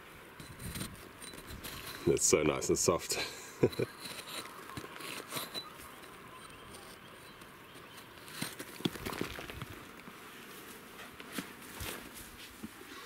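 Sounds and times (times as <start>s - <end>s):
rock pick scraping sediment: 0.3s - 10.1s
scratches and knocks: 0.4s - 2.6s, 3.6s - 9.8s.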